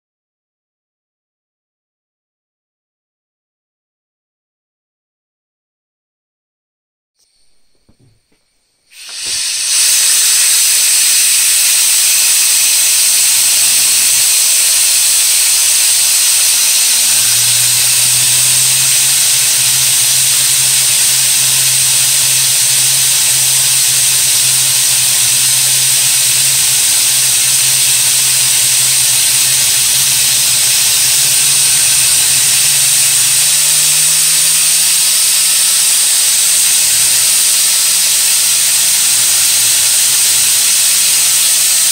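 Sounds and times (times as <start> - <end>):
compressed air hissing: 7.2 - 41.9
turbine low hum: 9.2 - 40.6.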